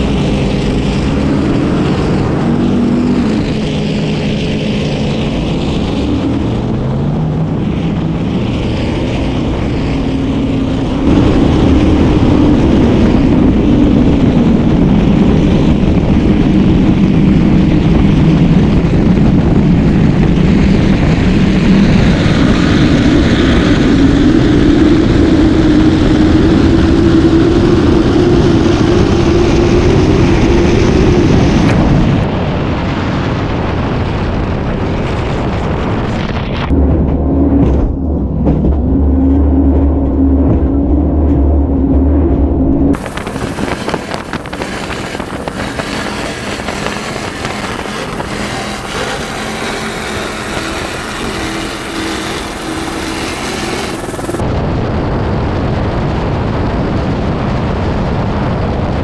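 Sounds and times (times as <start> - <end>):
wind and water rushing: 0.0 - 23.5, 43.0 - 59.0
boat engines running hard: 0.0 - 54.5.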